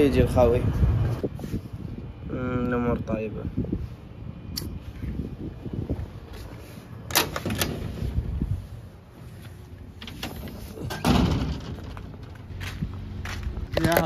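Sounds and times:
gate latch clicks: 7.1s - 7.8s
metal gate clank: 10.2s - 12.1s.

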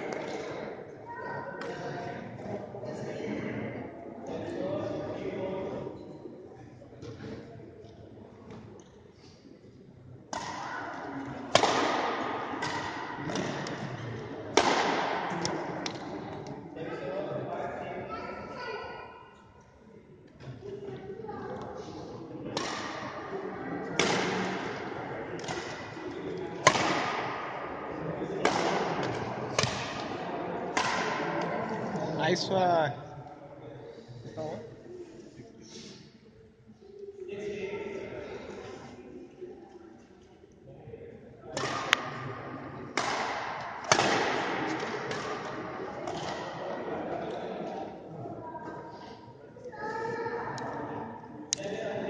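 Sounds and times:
rackets hitting shuttlecock with echo: 0.0s - 0.7s, 10.3s - 16.6s, 22.4s - 31.9s, 41.5s - 47.8s.

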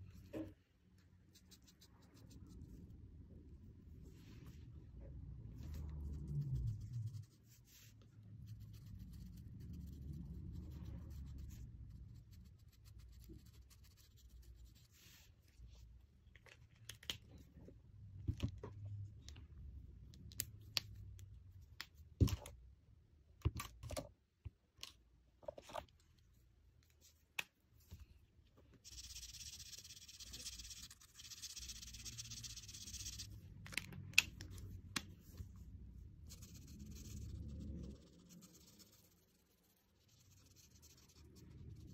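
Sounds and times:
marker scratching on paper: 28.8s - 33.4s, 36.2s - 41.9s.

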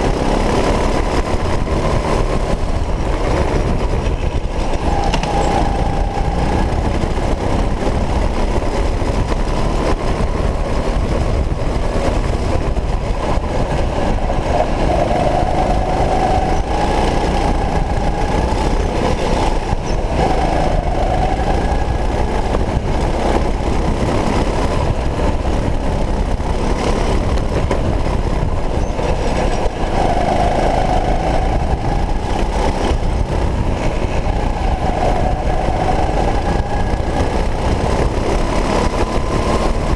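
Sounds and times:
go-kart motor drone: 0.0s - 39.9s
heavy rumble: 0.0s - 39.9s.

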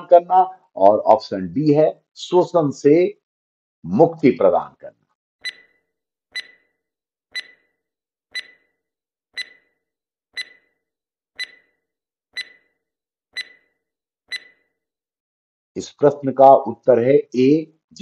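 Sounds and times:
stopwatch ticking: 5.4s - 6.7s, 7.3s - 8.8s, 9.4s - 9.8s, 10.4s - 10.8s, 11.4s - 11.8s, 12.4s - 12.8s, 13.4s - 14.7s.

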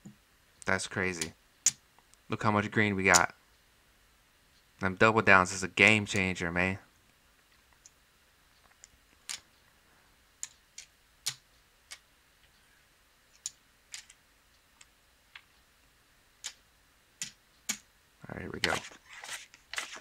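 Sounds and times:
casino chips clicking: 13.4s - 14.2s.

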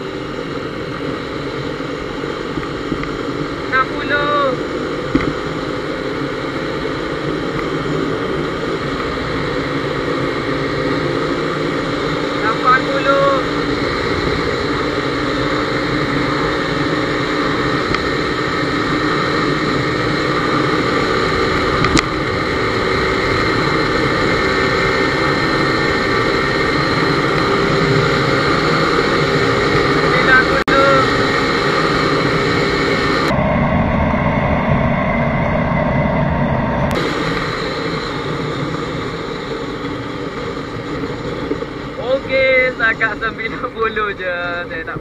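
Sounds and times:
motorcycle engine running: 0.0s - 45.0s
road and wind noise: 0.0s - 45.0s.

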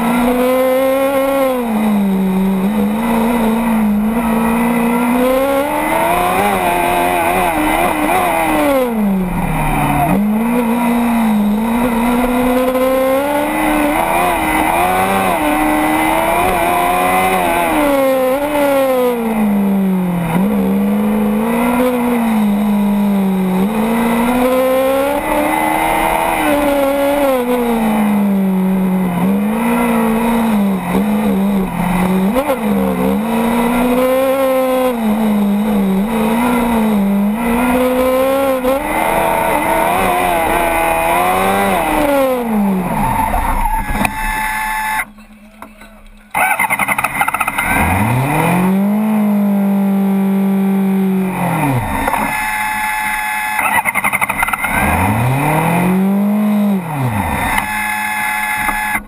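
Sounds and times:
race car engine accelerating: 0.0s - 45.2s, 46.3s - 59.0s.

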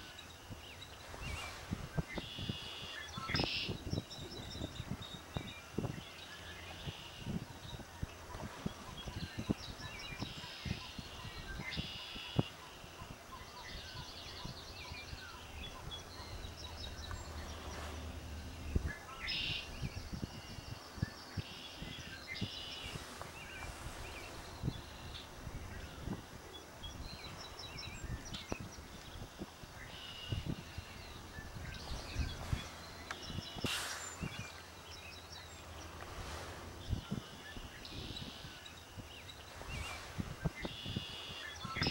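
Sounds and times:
songbirds trilling: 0.0s - 41.9s
low steady rumble: 14.6s - 20.7s.

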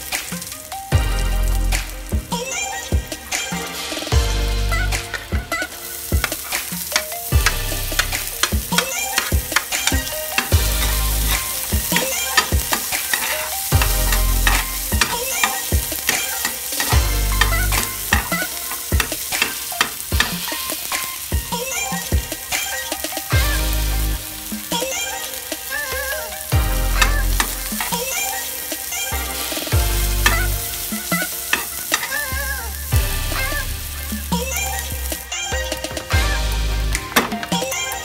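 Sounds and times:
onion sizzling in hot oil: 0.0s - 35.5s
metal spatula scraping pan: 5.1s - 21.3s, 29.4s - 32.4s.

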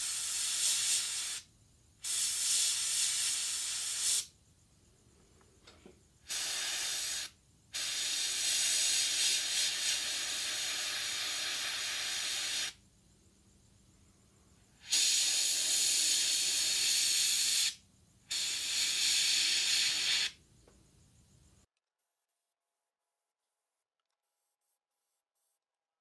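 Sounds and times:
airbrush hissing air: 0.0s - 4.4s, 6.2s - 12.8s, 14.6s - 20.4s.

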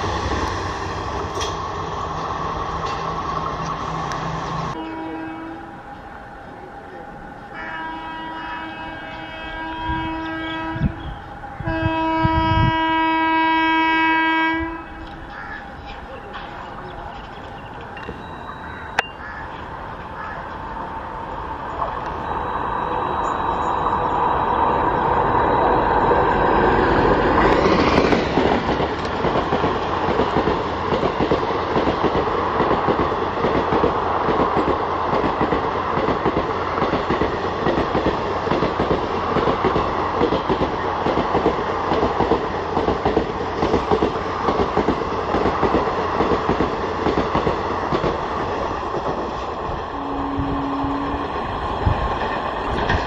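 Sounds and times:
train wheels clattering on rails: 0.0s - 4.3s, 26.5s - 49.9s, 51.2s - 53.0s.

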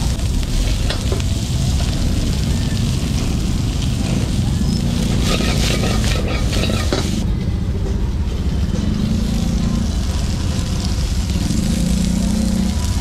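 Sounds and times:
steady low rumble: 0.0s - 11.7s
vegetables sizzling in a wok: 0.0s - 13.0s
metal ladle scraping a wok: 5.0s - 7.2s.

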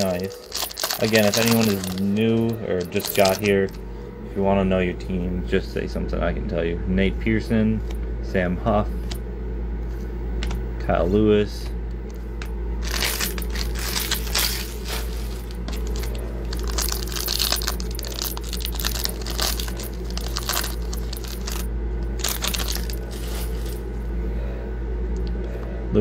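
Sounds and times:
foil wrapper crinkling: 0.0s - 3.7s, 12.8s - 23.8s
steady low hum: 0.0s - 26.0s.

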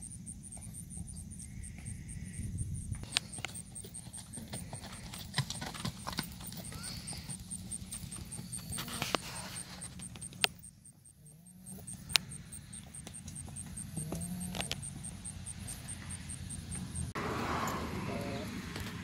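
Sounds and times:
fast high-pitched ticking: 0.0s - 17.2s
hoofbeats on dirt trail: 3.0s - 10.4s.

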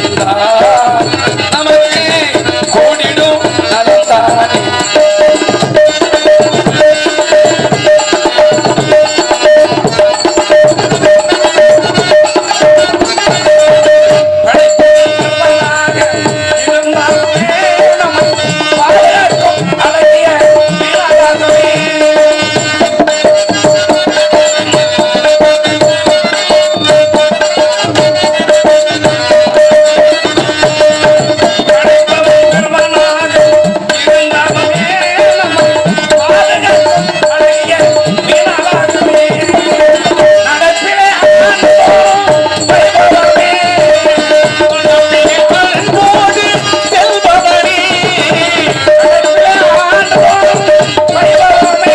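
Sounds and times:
hand drums beating: 0.0s - 51.9s
man singing: 0.0s - 51.9s.

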